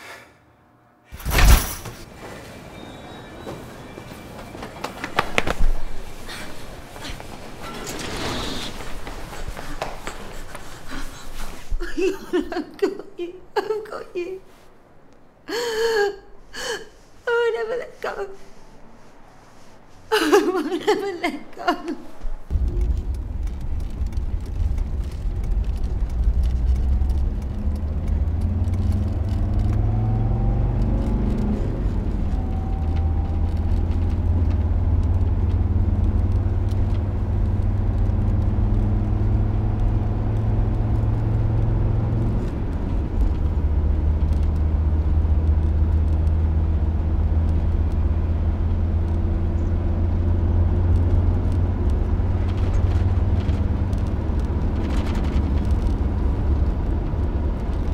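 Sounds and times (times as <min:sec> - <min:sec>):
vehicle engine droning: 0:22.2 - 0:57.9
rising whine: 0:22.5 - 0:35.8.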